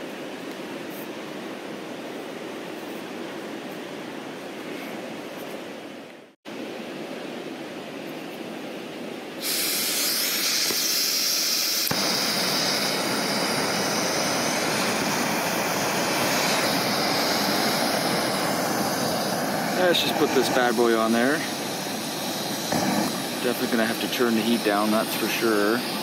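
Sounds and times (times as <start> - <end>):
gas stove hissing: 9.4 - 26.0.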